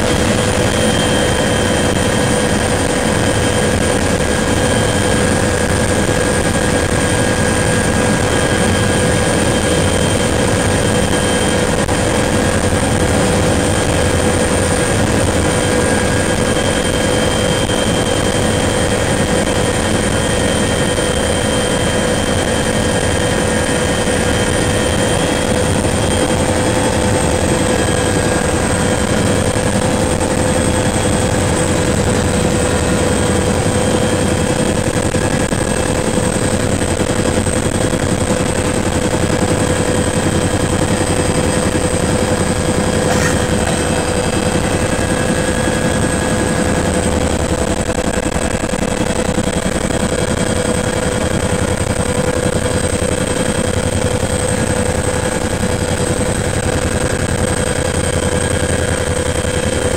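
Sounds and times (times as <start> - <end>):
helicopter engine and rotor drone: 0.0 - 59.9
high-pitched whines: 42.3 - 47.2.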